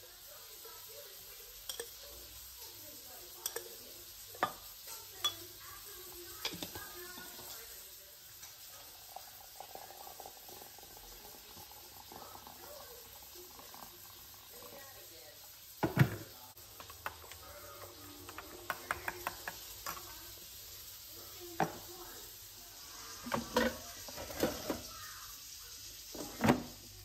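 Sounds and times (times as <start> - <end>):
water pouring from a kettle: 0.0 - 27.0
light glass clinks: 1.7 - 2.0.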